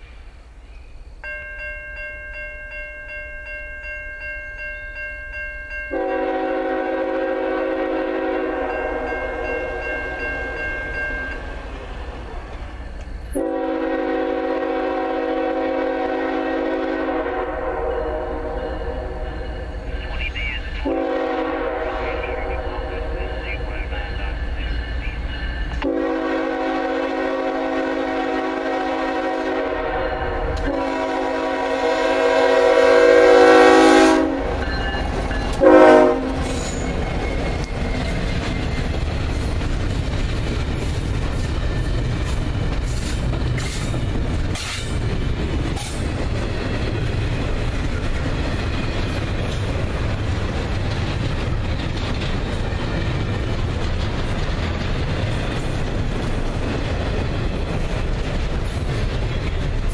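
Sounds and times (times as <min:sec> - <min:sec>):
train cars rumbling past: 0:00.0 - 0:59.9
locomotive horn blasts: 0:05.9 - 0:10.2, 0:13.4 - 0:19.4, 0:20.8 - 0:23.7, 0:25.7 - 0:34.7, 0:35.5 - 0:36.6
train car clanks: 0:23.7 - 0:27.7, 0:33.3 - 0:59.9.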